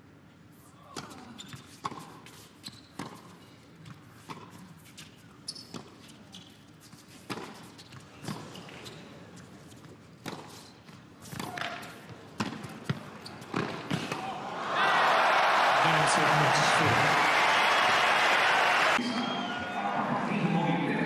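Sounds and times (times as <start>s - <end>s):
ball bouncing on hard court: 10.2s - 14.3s.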